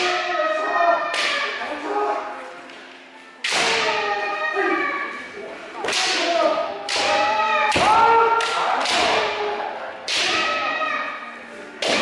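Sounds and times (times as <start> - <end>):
bamboo sword strikes: 1.1 - 1.5, 3.4 - 4.1, 5.8 - 9.4, 10.0 - 10.6, 11.8 - 12.0.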